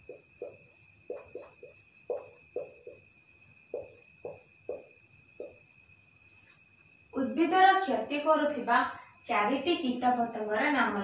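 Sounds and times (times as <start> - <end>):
marker pen writing on whiteboard: 0.0 - 3.1, 3.7 - 5.6.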